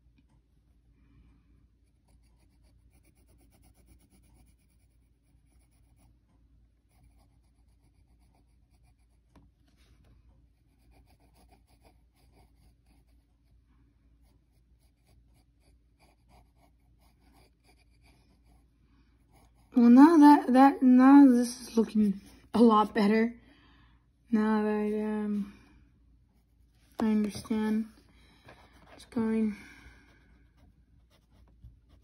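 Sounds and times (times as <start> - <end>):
pencil scratching on paper: 1.8 - 6.2, 6.8 - 9.8, 10.4 - 13.6, 14.2 - 20.5, 30.4 - 32.0.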